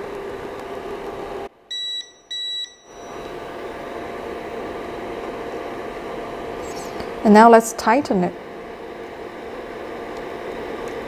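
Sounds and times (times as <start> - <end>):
steady mechanical hum: 0.0 - 11.0
short electronic beeps: 1.7 - 3.3.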